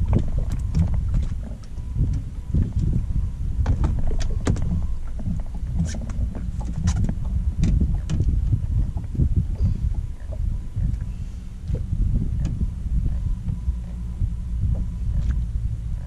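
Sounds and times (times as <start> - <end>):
low uneven rumble: 0.0 - 16.0.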